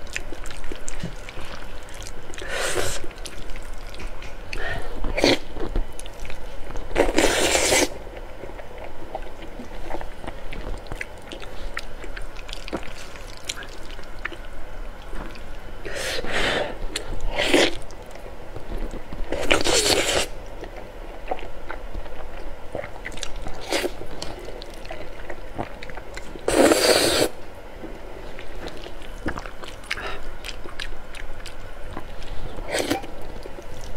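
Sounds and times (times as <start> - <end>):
soft wet chewing: 0.0 - 15.9, 16.8 - 33.9
loud noodle slurping: 7.1 - 7.9, 26.5 - 27.4.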